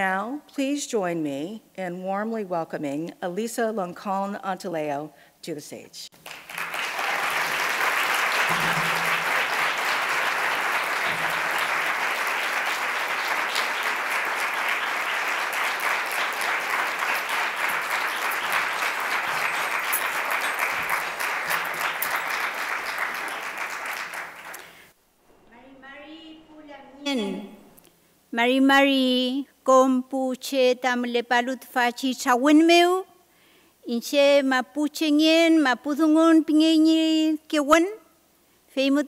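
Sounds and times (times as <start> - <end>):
large audience applauding: 6.2 - 24.9.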